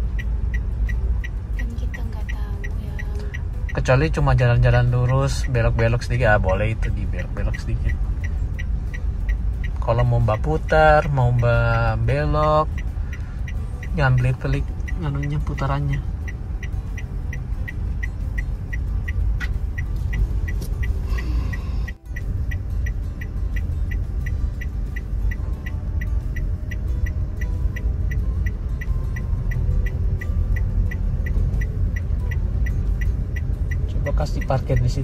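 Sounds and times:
car engine rumble and road noise: 0:00.0 - 0:35.0
fast even ticking: 0:00.0 - 0:35.0.

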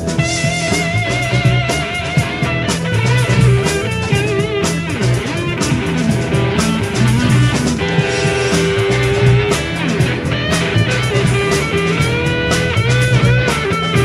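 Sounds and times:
bending electric guitar line: 0:00.0 - 0:14.0
rock band playing live: 0:00.0 - 0:14.0.

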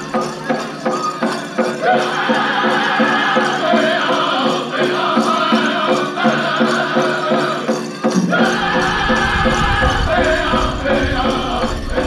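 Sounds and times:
drum group singing: 0:00.0 - 0:12.0
steady drumbeat: 0:00.0 - 0:12.0
low rumble: 0:08.6 - 0:12.0.

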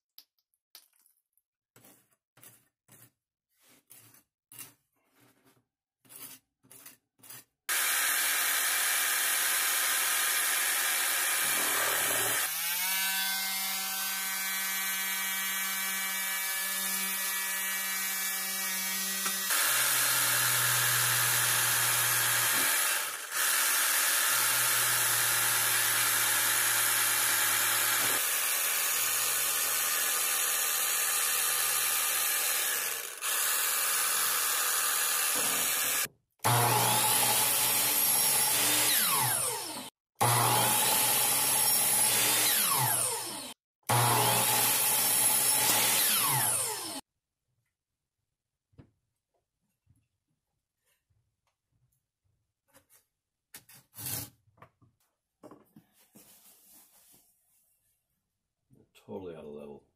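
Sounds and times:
putty knife scraping on toast: 0:01.8 - 0:07.6
reciprocating saw cutting lettuce: 0:01.8 - 0:13.1
cordless power tool motor whine: 0:07.7 - 0:28.2, 0:29.5 - 0:47.0.

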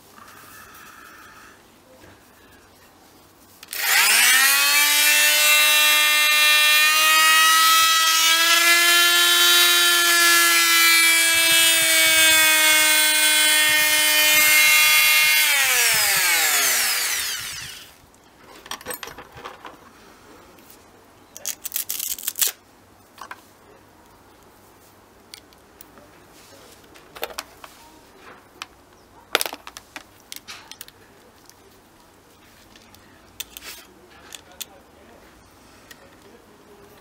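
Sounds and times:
oscillating multitool buzzing: 0:03.7 - 0:17.9.

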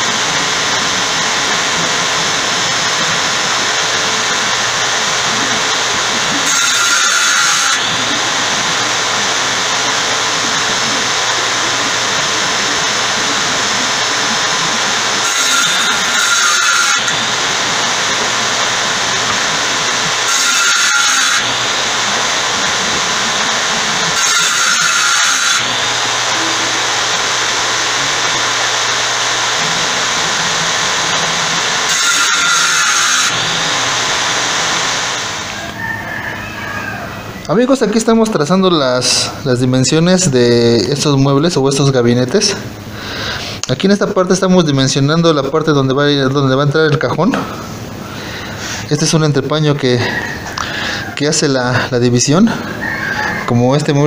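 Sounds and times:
saw blade cutting panel: 0:00.0 - 0:35.8
table saw running: 0:00.0 - 0:54.0.

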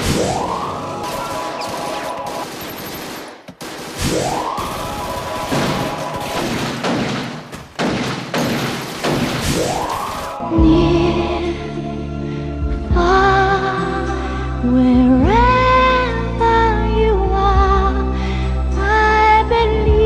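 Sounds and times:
rapid crackling: 0:00.0 - 0:10.4.

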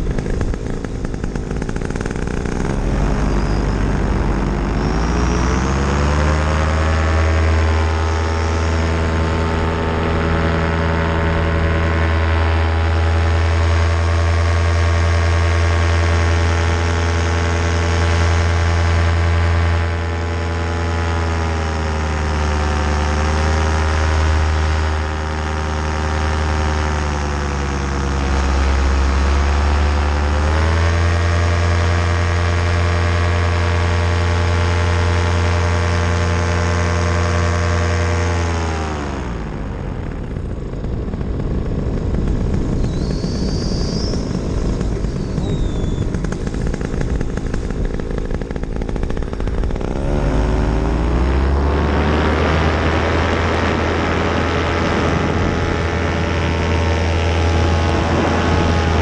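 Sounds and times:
paramotor engine and propeller: 0:00.0 - 0:59.0.

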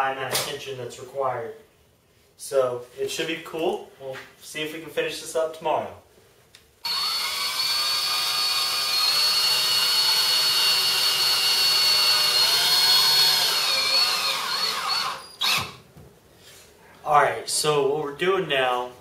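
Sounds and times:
cordless drill driving screws: 0:06.8 - 0:15.8.

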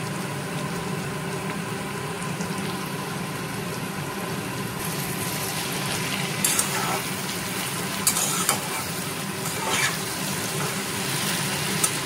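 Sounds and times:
food sizzling in oil: 0:00.0 - 0:12.0
spatula stirring: 0:06.4 - 0:07.2, 0:08.0 - 0:12.0.

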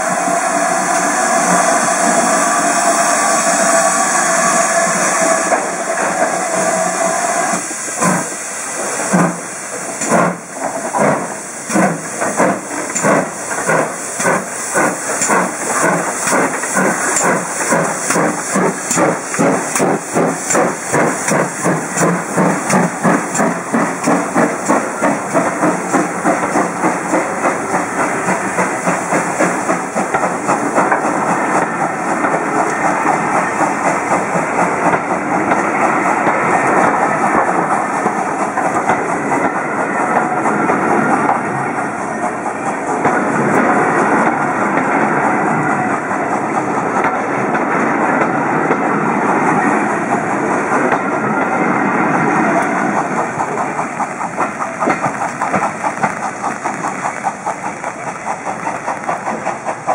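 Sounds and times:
steam hissing: 0:00.0 - 0:59.9
steam locomotive chuffing: 0:00.0 - 0:59.9.

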